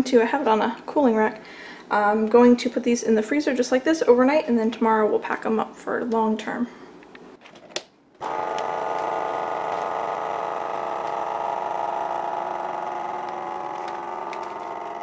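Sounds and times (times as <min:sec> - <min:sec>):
vacuum sealer pump running: 0:08.2 - 0:15.0.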